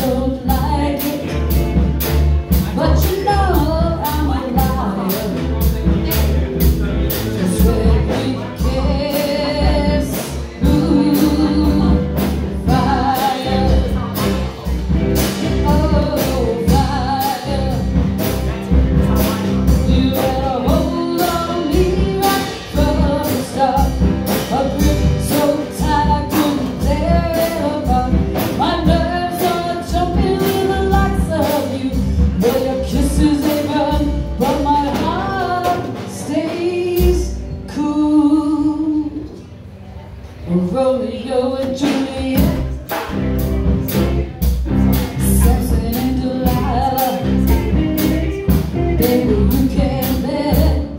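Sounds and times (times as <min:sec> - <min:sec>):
woman singing: 0:00.0 - 0:01.8, 0:02.5 - 0:06.0, 0:07.2 - 0:39.4, 0:40.4 - 0:43.0, 0:43.6 - 0:50.9
drums: 0:00.0 - 0:50.9
electric guitars: 0:42.4 - 0:50.9.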